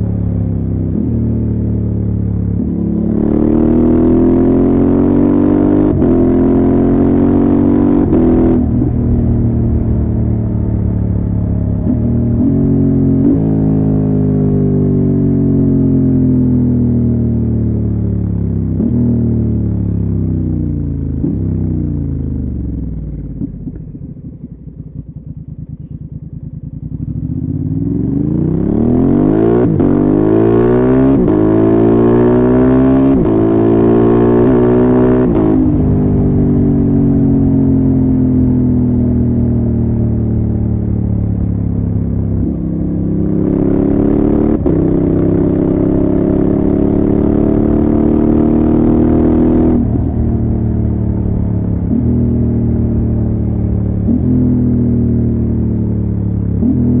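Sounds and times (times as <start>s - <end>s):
motorcycle engine revving: 0.0s - 57.0s
quickshifter upshifts: 41.4s - 57.0s.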